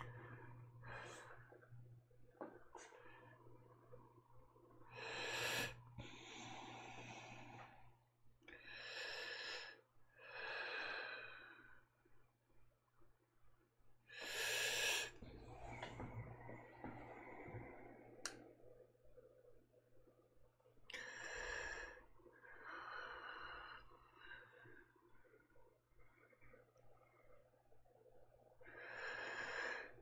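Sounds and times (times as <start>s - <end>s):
low steady hum: 0.0s - 29.7s
person breathing close: 4.9s - 11.8s, 14.1s - 18.4s.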